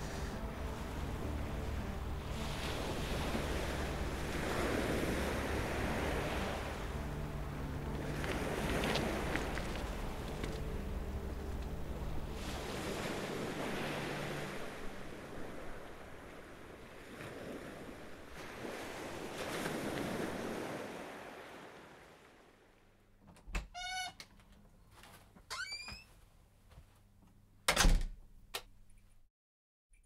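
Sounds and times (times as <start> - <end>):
waves on pebble shore: 0.0 - 10.7, 12.3 - 22.6
low steady hum: 0.0 - 16.9
door squeaking: 23.4 - 24.4, 25.5 - 26.2
door latch clicking: 27.7 - 28.7.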